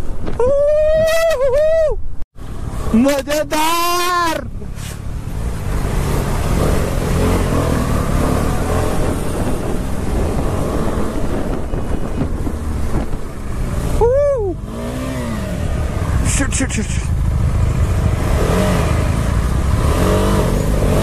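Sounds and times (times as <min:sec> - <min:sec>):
wind noise: 0:00.0 - 0:02.2, 0:05.7 - 0:16.3.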